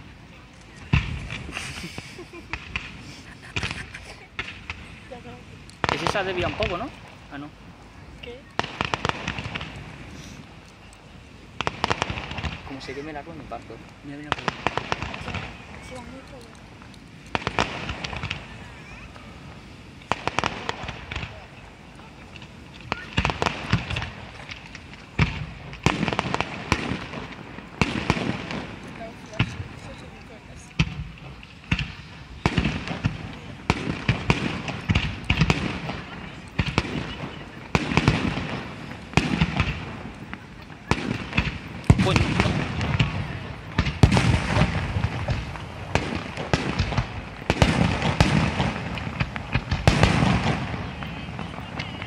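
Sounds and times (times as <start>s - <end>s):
firework crackling and popping: 0.0s - 52.0s
firework shells bursting: 0.5s - 7.4s, 11.6s - 52.0s.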